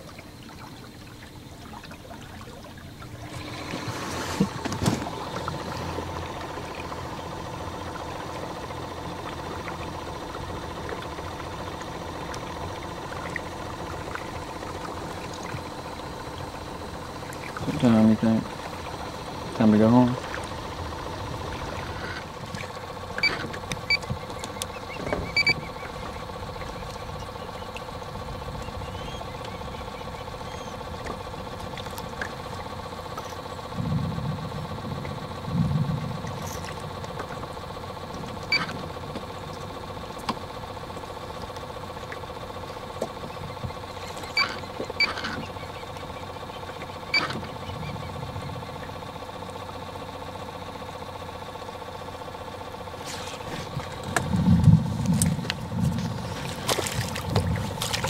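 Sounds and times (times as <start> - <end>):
dull low thumps: 53.7 - 58.0.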